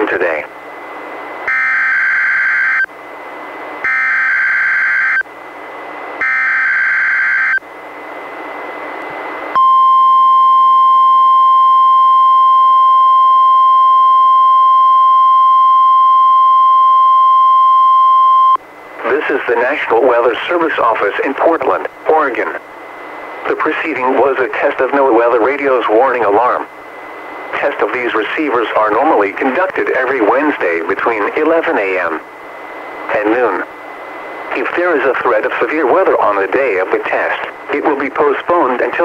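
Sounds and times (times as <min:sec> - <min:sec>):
radio hiss: 0:00.0 - 0:01.4, 0:18.8 - 0:39.0
steady warning alarm tone: 0:01.4 - 0:02.9, 0:03.8 - 0:05.3, 0:06.2 - 0:07.6, 0:09.6 - 0:18.6.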